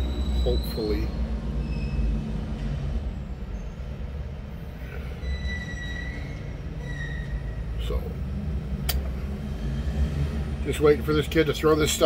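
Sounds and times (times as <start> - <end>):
faint high squeal: 0.0 - 2.4, 3.1 - 4.0, 4.7 - 8.1.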